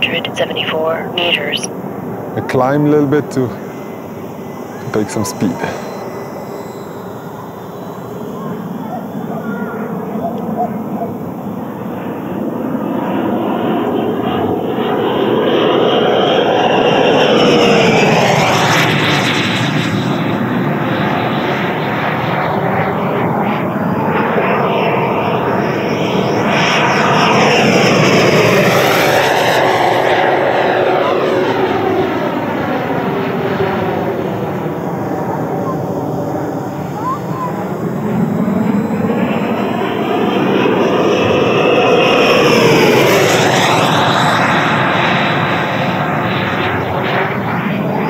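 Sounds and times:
rc jet ducted fan whine: 0:00.0 - 0:48.0.

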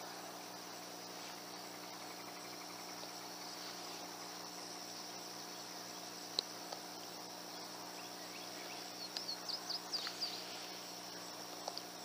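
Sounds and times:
crickets chirping: 0:00.0 - 0:12.0
bird chirps: 0:07.5 - 0:11.3.

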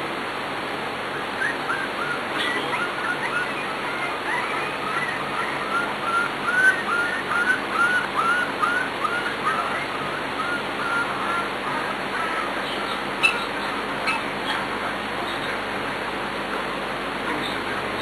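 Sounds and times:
puppy whining: 0:01.4 - 0:14.7.

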